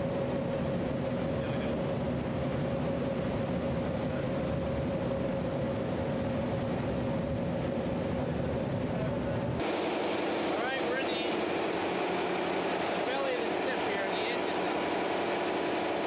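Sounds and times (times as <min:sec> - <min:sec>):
boat machinery droning: 0:00.0 - 0:16.0.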